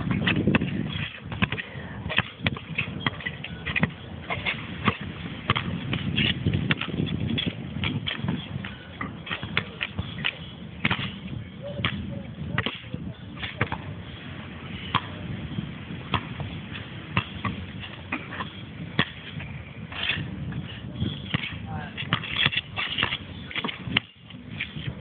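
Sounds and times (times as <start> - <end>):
basketball bouncing thuds: 0.0 - 14.0, 14.9 - 15.2, 16.0 - 25.0.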